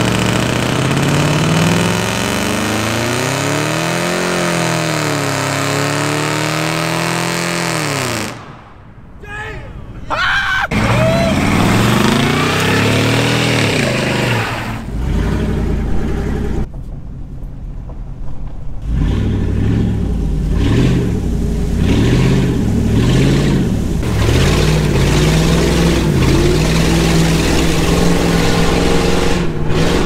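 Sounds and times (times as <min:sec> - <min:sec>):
truck engines revving: 0:00.0 - 0:17.0, 0:17.6 - 0:30.0
hiss of water spray: 0:19.9 - 0:28.8.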